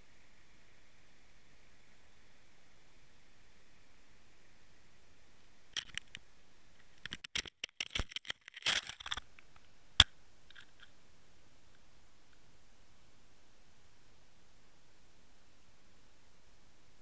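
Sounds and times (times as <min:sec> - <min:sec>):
scratchy clicks and rattles: 0:05.8 - 0:06.2, 0:06.8 - 0:09.5, 0:10.5 - 0:10.9.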